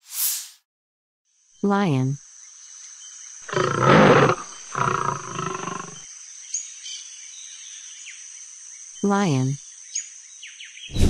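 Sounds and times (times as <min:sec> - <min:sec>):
high-pitched jungle ambience: 0:01.4 - 0:11.0
lion roaring: 0:03.5 - 0:06.0.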